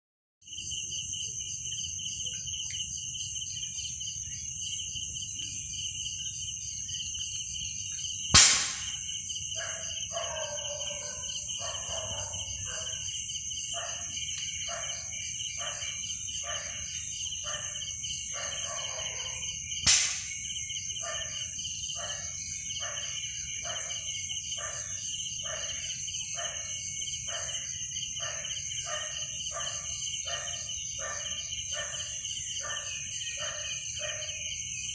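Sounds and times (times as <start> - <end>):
insects trilling: 0.4 - 34.9
sharp knocks: 8.4 - 9.0.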